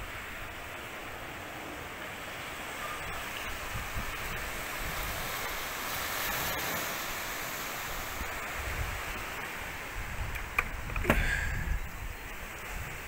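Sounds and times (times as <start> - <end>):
sea water washing on rocks: 0.0 - 11.6
wind rumble on microphone: 3.1 - 13.0.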